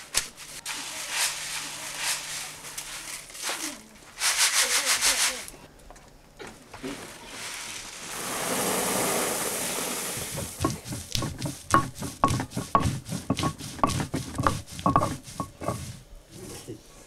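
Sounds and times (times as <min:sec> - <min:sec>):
grain pouring into a sack: 0:00.6 - 0:05.4, 0:06.8 - 0:11.0
stone roller scraping grinding stone: 0:08.0 - 0:16.0.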